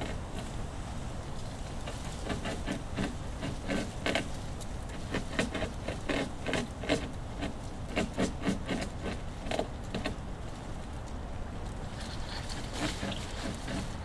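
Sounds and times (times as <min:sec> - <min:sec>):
beaver gnawing on wood: 0:00.0 - 0:11.2, 0:12.0 - 0:14.0.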